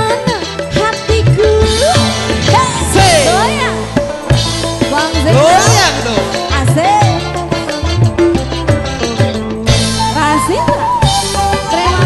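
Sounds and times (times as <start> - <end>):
drums: 0.0 - 12.0
bass line: 1.2 - 12.0
ornamented sliding melody: 1.7 - 8.1.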